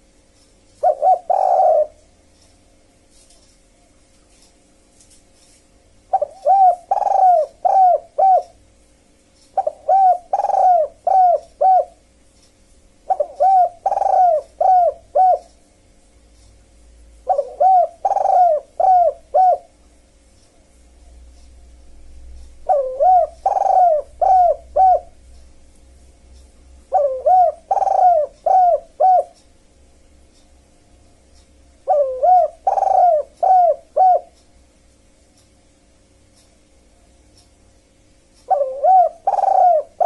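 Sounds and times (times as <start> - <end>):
faint steady hum: 0.0 - 40.0
dove cooing: 0.8 - 2.1, 6.1 - 8.6, 9.6 - 12.0, 13.1 - 15.6, 17.2 - 19.8, 22.6 - 25.2, 26.9 - 29.4, 31.8 - 34.4, 38.5 - 40.0.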